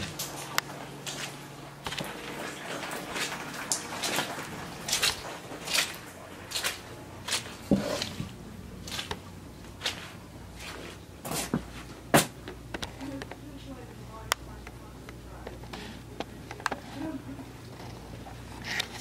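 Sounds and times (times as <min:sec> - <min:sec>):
footsteps squelching on wet carpet: 0:00.0 - 0:12.4.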